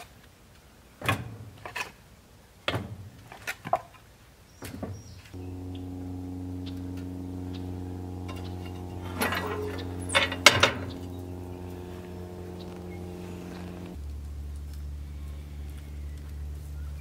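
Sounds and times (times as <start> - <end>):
low mechanical hum: 5.4 - 17.0.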